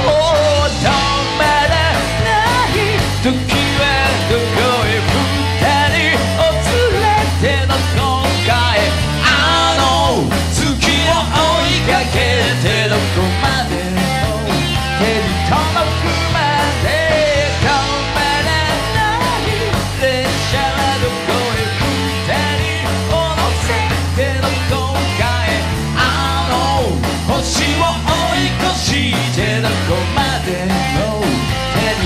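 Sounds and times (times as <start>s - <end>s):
live rock band playing: 0.0s - 32.0s
man singing with vibrato: 0.0s - 32.0s.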